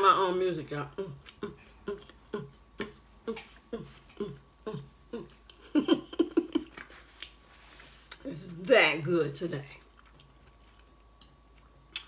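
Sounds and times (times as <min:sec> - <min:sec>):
woman humming while chewing: 0:00.9 - 0:07.3.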